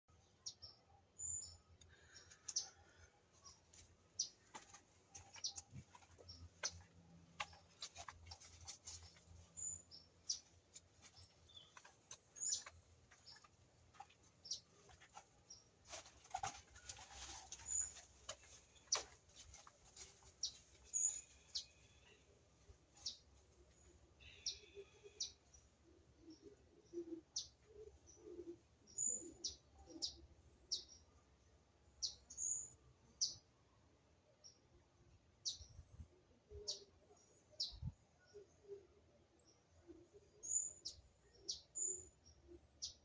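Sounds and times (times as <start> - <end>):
wild birds chirping: 0.1 - 43.0.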